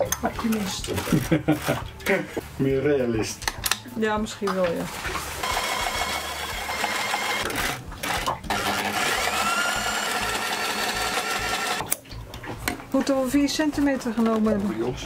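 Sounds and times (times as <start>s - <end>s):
electric sewing machine running: 5.4s - 11.8s.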